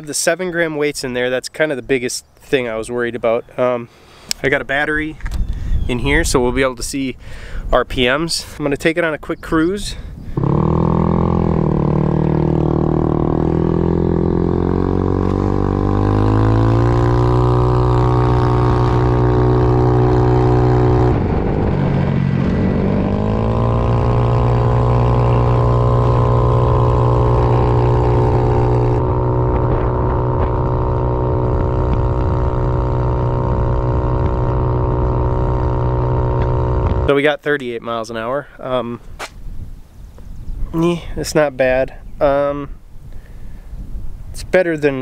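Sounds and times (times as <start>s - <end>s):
scooter engine accelerating: 10.4s - 37.1s.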